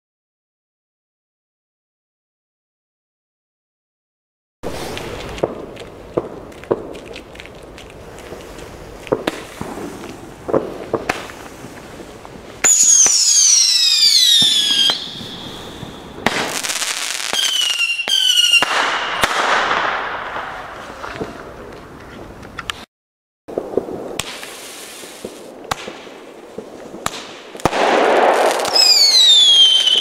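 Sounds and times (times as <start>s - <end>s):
whistling firework: 4.6s - 5.6s, 9.2s - 21.6s, 27.1s - 30.0s
crackling hiss: 4.6s - 18.1s, 23.5s - 30.0s.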